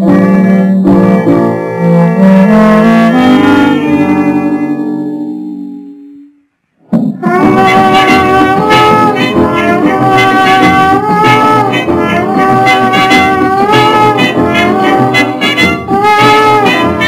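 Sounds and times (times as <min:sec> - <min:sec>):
guitar: 0:00.0 - 0:17.0
brass melody with gliding notes: 0:01.9 - 0:06.4, 0:07.2 - 0:17.0
steady beat: 0:06.9 - 0:17.0.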